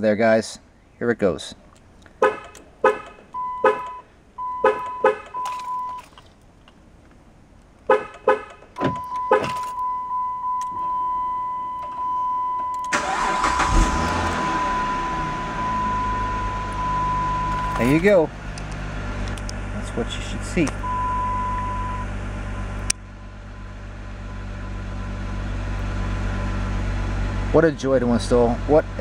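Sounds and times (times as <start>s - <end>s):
car engine cranking and idling: 1.7s - 29.0s
short clicks and beeps: 2.2s - 6.2s, 8.2s - 13.1s, 16.0s - 18.0s
steady high beep: 3.4s - 6.0s, 9.0s - 12.9s, 14.4s - 17.8s, 20.8s - 22.7s.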